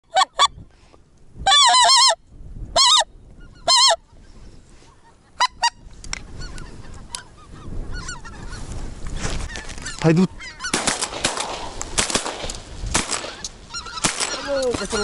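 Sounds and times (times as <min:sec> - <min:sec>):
geese honking: 0:02.8 - 0:04.2, 0:04.9 - 0:08.8, 0:09.4 - 0:11.4, 0:13.0 - 0:15.0.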